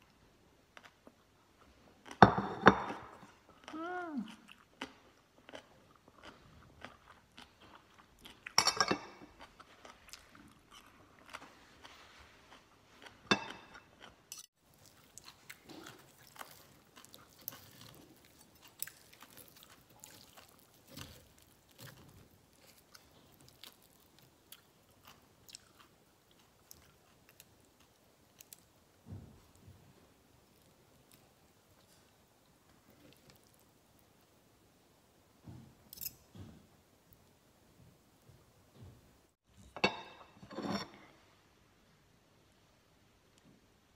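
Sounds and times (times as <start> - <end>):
chewing and crunching food: 2.9 - 34.2.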